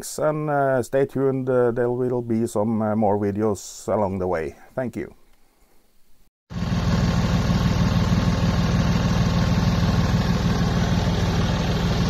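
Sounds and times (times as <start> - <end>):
heater exhaust pulsing drone: 6.5 - 12.0.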